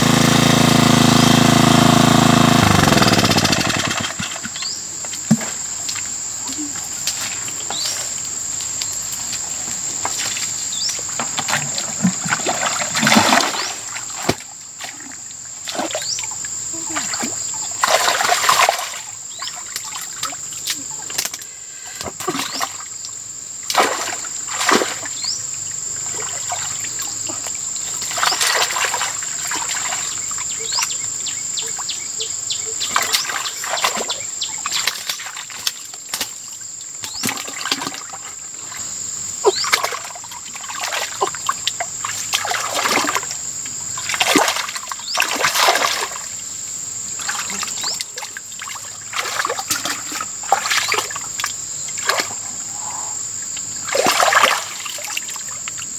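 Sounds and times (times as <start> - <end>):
hands splashing in muddy water: 11.2 - 15.1, 17.0 - 21.3, 23.7 - 25.2, 28.0 - 30.2, 39.5 - 43.4, 44.0 - 46.3, 47.2 - 52.4, 53.9 - 55.4.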